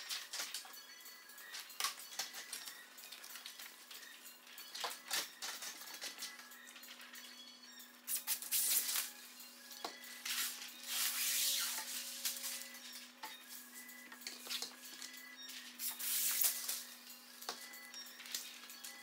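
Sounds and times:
card scraping on glass: 10.2s - 12.6s.

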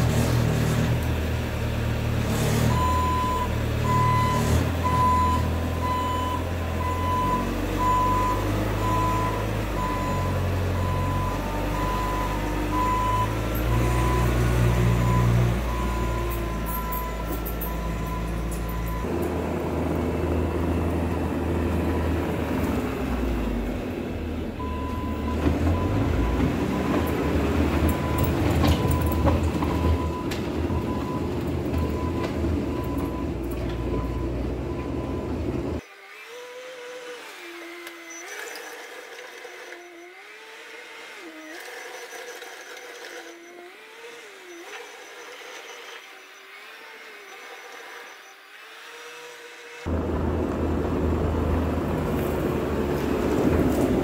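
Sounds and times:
diesel engine running: 0.0s - 35.8s, 49.9s - 54.0s
tracks driving across gravel: 24.6s - 35.8s, 49.9s - 54.0s.

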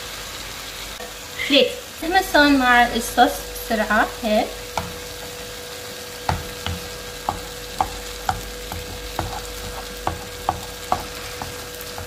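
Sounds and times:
low sizzle: 0.0s - 12.0s
spatula scraping a frying pan: 4.6s - 12.0s.

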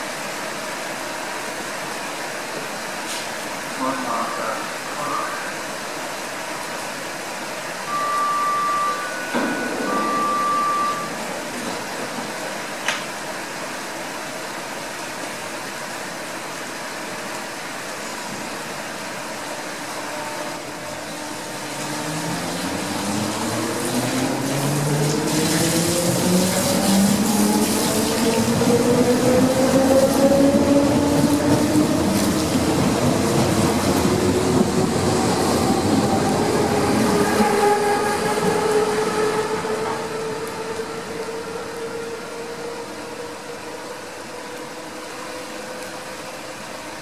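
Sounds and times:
electric train humming: 4.1s - 47.0s
long beeps: 7.9s - 11.4s.

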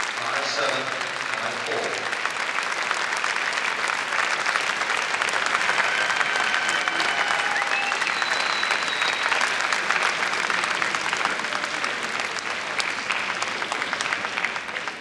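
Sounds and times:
crowd applauding: 0.0s - 15.0s
brief high tones: 5.1s - 9.8s.

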